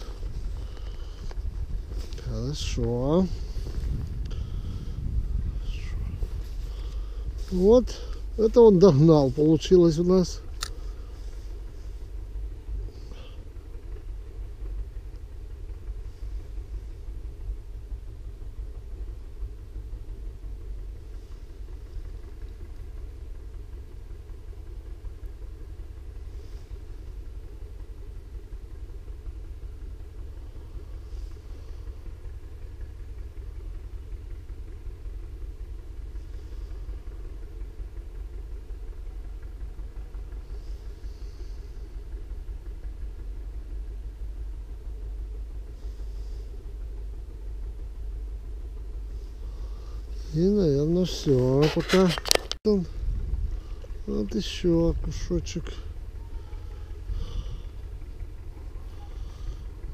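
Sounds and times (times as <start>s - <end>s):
wind rumble on microphone: 0.0s - 8.4s, 51.8s - 58.6s.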